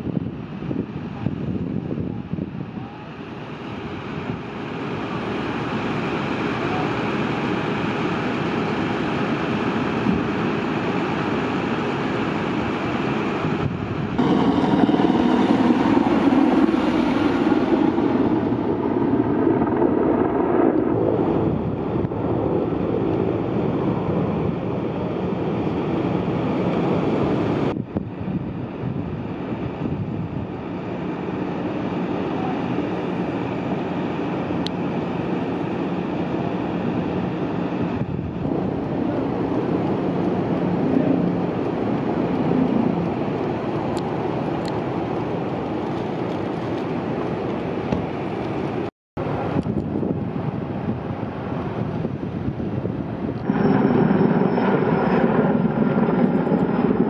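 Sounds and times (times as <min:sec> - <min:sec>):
wind: 0:00.0 - 0:57.0
deep rumble: 0:14.0 - 0:24.9, 0:53.1 - 0:57.0.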